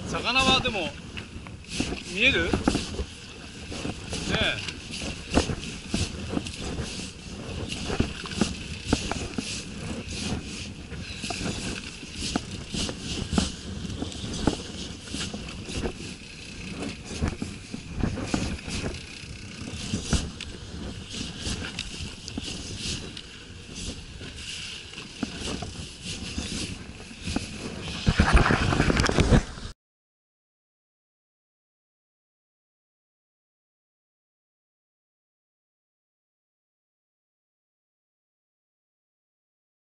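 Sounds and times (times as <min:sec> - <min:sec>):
wind: 0:00.0 - 0:29.8.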